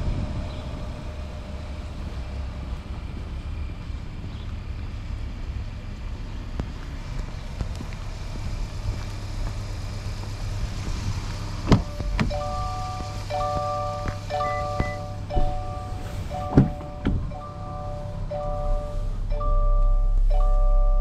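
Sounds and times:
steady low rumble: 0.0 - 21.0
mallet percussion music: 12.0 - 21.0.

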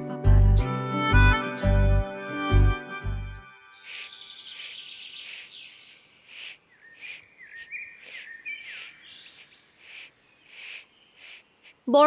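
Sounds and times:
bird trill: 3.5 - 11.8
birds chirping: 3.5 - 12.0
whistled bird notes: 3.6 - 11.4
broom sweeping earth: 3.8 - 11.8.

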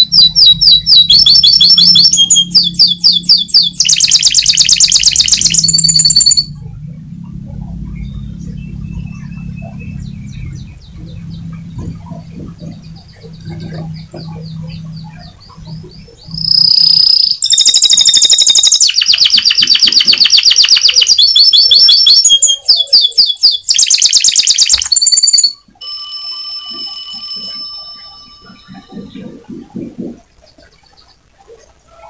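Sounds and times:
steady electronic tone: 0.0 - 23.7, 24.8 - 31.3
canary singing: 0.0 - 25.7, 26.5 - 32.0.

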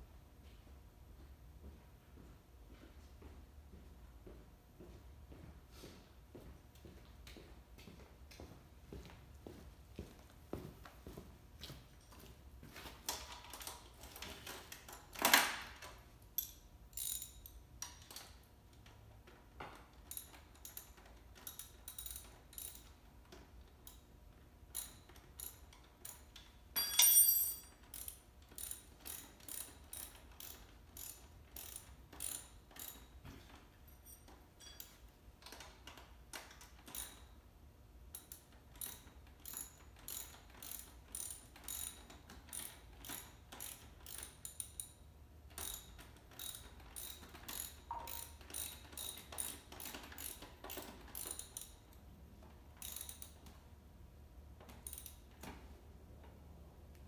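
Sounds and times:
ratchet wrench clicking: 13.1 - 19.0, 19.7 - 24.0, 24.7 - 33.1, 34.2 - 37.4, 38.1 - 52.0, 52.8 - 53.6, 54.6 - 55.4.

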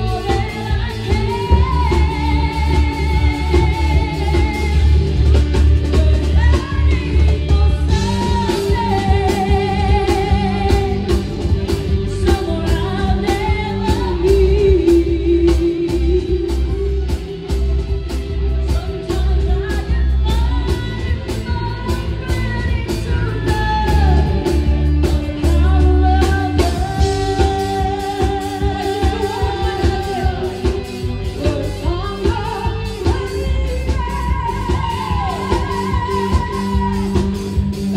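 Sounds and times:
live band playing pop ballad: 0.0 - 37.9
woman singing: 0.0 - 37.9.

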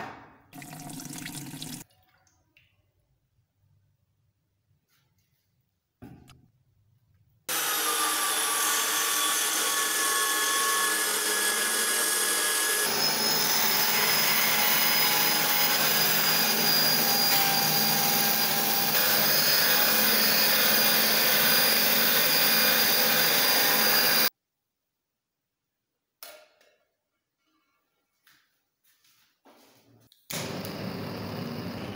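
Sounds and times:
electric drill motor whine: 7.5 - 24.3, 30.4 - 31.9.

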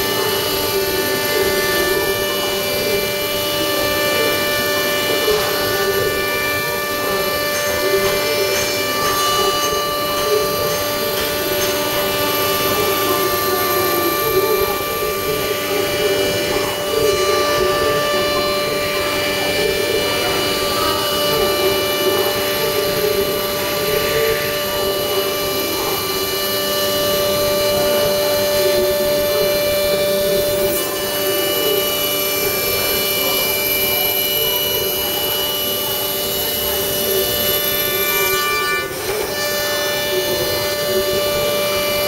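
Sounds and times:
router spindle cutting wood: 0.0 - 42.0.

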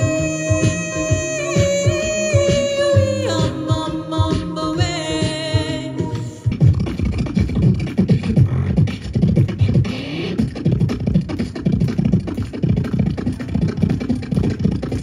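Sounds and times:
person humming a glide: 0.0 - 6.5
beatboxing into a microphone: 0.0 - 15.0.

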